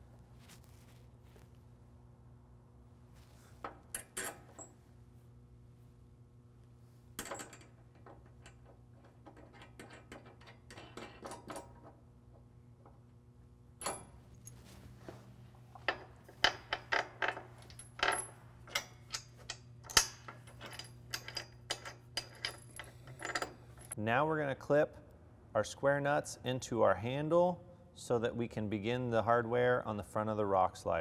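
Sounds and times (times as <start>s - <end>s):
steel hardware clicking and clinking: 15.7s - 24.0s.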